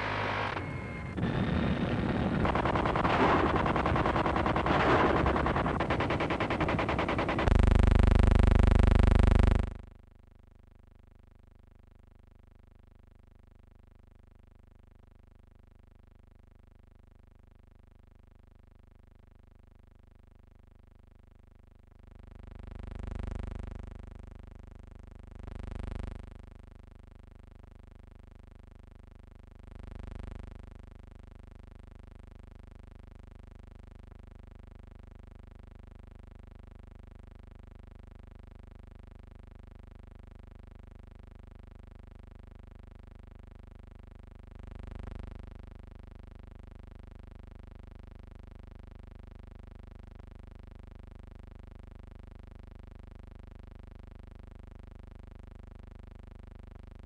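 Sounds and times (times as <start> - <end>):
film soundtrack hum: 0.0 - 7.5
machine-gun fire: 0.0 - 7.5
muffled explosion rumbles: 0.0 - 7.5.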